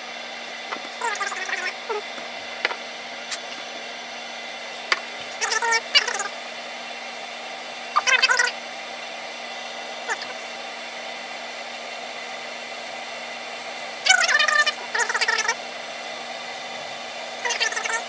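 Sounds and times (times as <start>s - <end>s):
kettle hissing: 0.0s - 6.7s.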